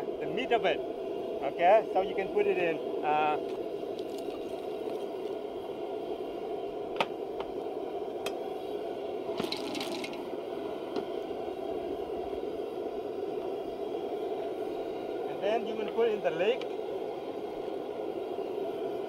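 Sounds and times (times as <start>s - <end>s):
gas burner roaring: 0.0s - 19.0s
pot scraping on burner: 9.4s - 10.2s.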